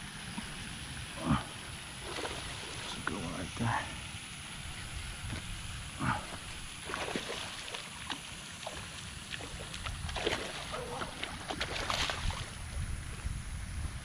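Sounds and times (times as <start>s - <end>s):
fish splashing at surface: 2.0s - 3.0s, 6.0s - 12.6s
wind rumble on microphone: 9.4s - 14.0s.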